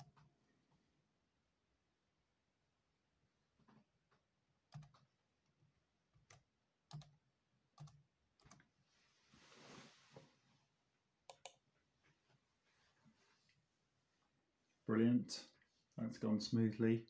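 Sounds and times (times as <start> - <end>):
soft rustle: 8.8 - 10.7, 12.0 - 14.8.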